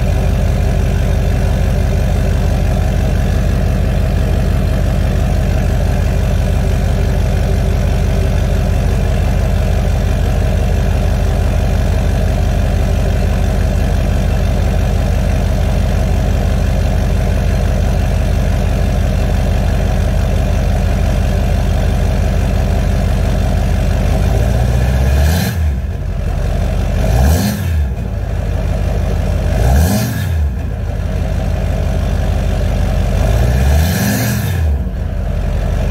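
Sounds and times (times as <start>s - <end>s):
diesel engine idling: 0.0s - 35.9s
engine revving: 24.1s - 25.9s, 26.6s - 28.4s, 29.4s - 31.0s, 33.1s - 35.0s.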